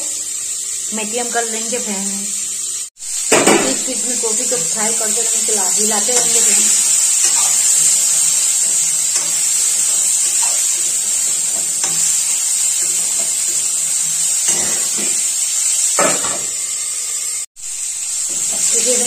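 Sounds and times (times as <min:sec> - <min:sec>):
food sizzling in hot oil: 0:00.0 - 0:19.0
metal scraping and clinking on pan: 0:05.4 - 0:15.3.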